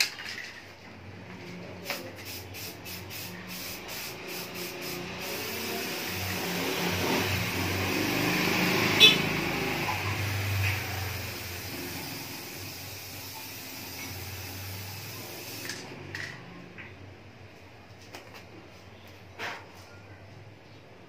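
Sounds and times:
spray can hissing: 1.9 - 16.0.

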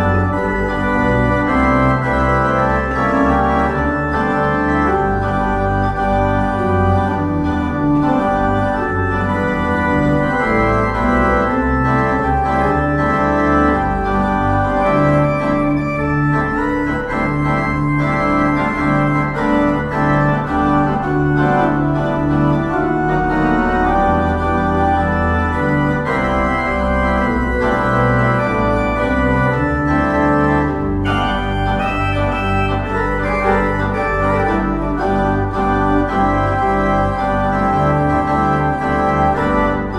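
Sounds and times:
organ playing held chords: 0.0 - 39.9.

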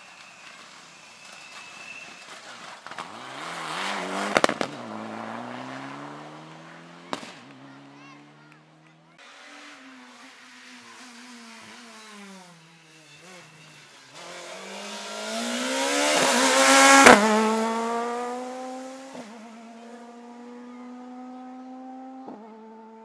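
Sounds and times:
engine sharp crack: 0.1 - 18.6
rally car engine at full throttle: 2.2 - 23.0.

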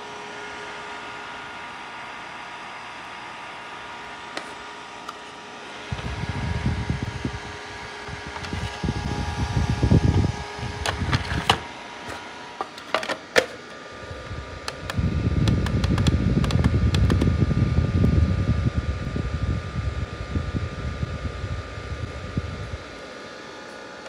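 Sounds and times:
fan whining: 0.0 - 24.0
sharp plastic clicks: 14.6 - 17.3.

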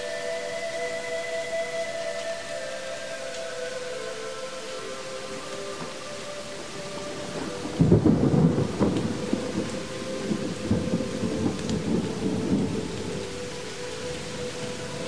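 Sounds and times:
held musical tone: 0.0 - 15.0
steady rain: 0.0 - 15.0
thunder rumbling: 6.5 - 15.0.

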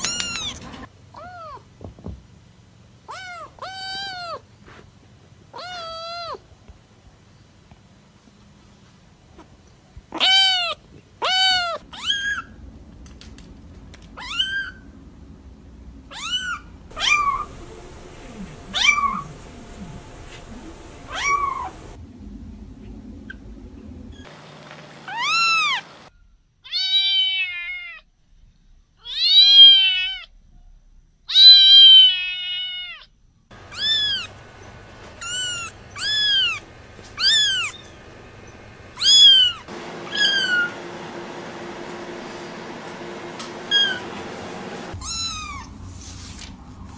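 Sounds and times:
kittens meowing: 16.1 - 22.0, 31.3 - 38.0, 39.0 - 40.7, 45.0 - 45.7.

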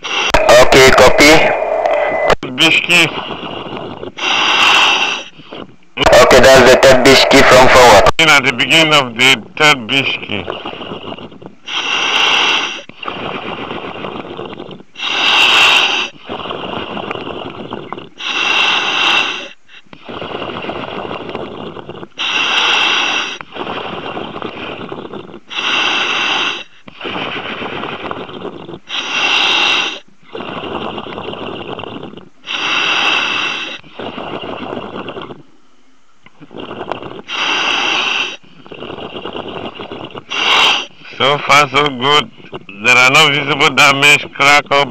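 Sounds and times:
breathing apparatus hiss: 0.0 - 2.4, 3.0 - 5.7, 10.5 - 35.5, 36.4 - 41.6.

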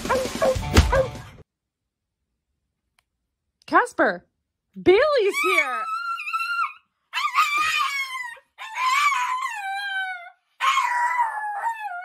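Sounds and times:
small dog howling: 5.4 - 12.0.

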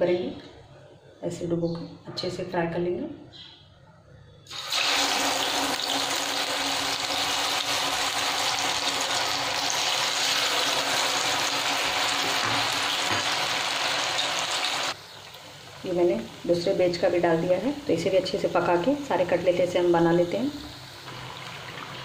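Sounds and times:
cutlets deep-frying in hot oil: 4.5 - 22.0.

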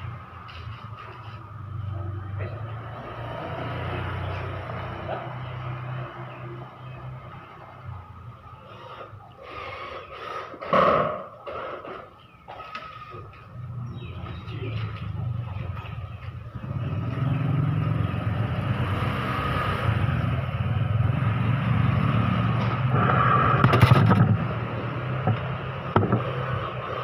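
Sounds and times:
engine humming: 0.0 - 27.0.

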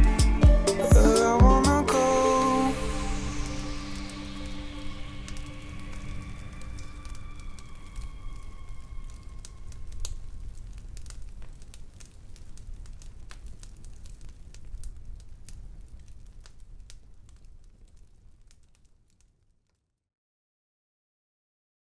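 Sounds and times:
low rumble of flames: 2.8 - 19.8
bonfire pops and snaps: 3.5 - 19.8.

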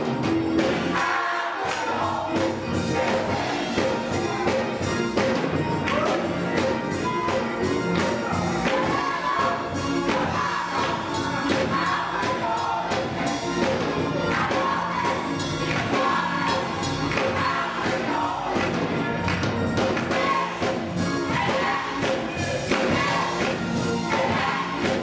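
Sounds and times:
gospel choir singing: 0.0 - 25.0
keyboard accompaniment: 0.0 - 25.0
hand claps: 17.1 - 17.4, 18.6 - 20.1.

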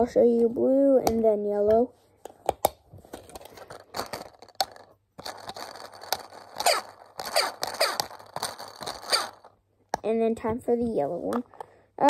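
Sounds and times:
plastic bricks clicking: 2.2 - 10.0
plastic scraping and rubbing: 2.9 - 9.6.

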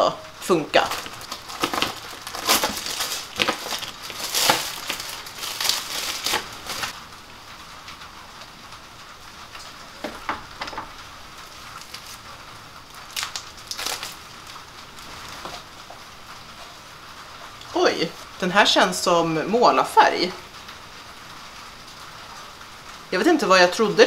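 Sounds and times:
plastic packaging crinkling: 0.5 - 7.0, 10.8 - 15.8.

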